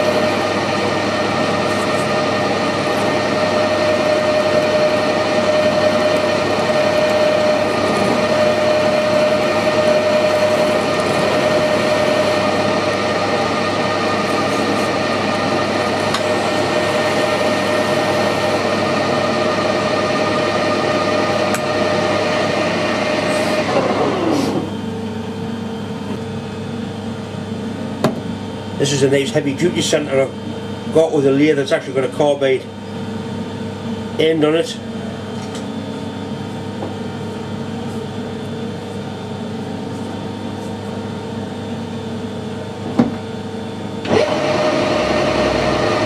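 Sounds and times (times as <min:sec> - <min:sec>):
spindle winding down: 0:00.0 - 0:24.7, 0:44.0 - 0:46.0
metal lathe whining: 0:00.0 - 0:24.8, 0:44.0 - 0:46.0.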